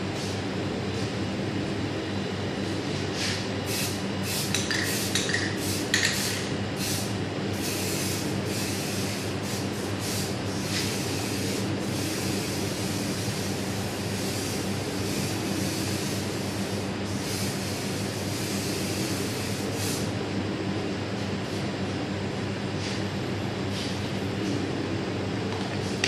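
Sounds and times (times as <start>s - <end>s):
steady low hum: 0.0s - 26.0s
aerosol spray can hissing: 3.7s - 20.0s.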